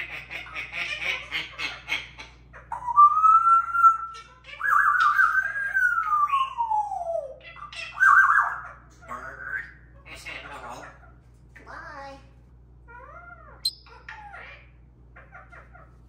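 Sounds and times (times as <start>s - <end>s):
parrot laughing: 0.0s - 2.8s
parrot whistling: 13.6s - 14.0s.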